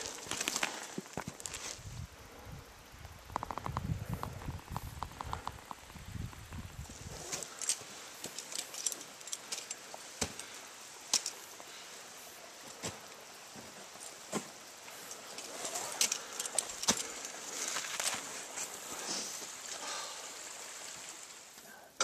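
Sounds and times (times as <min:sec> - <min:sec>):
boots crunching on snow and rock: 0:00.0 - 0:01.8
metal climbing gear clinking: 0:07.0 - 0:11.8, 0:12.4 - 0:18.6.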